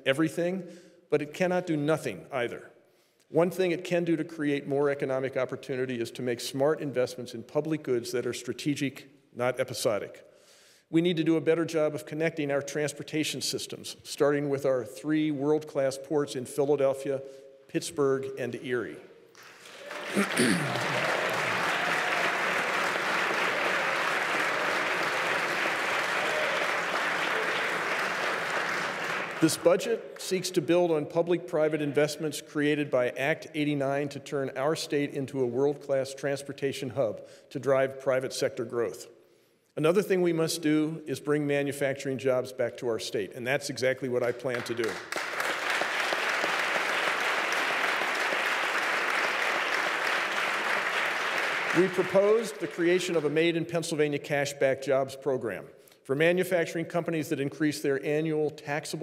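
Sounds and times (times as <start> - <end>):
audience applauding: 19.4 - 29.7, 44.5 - 53.4.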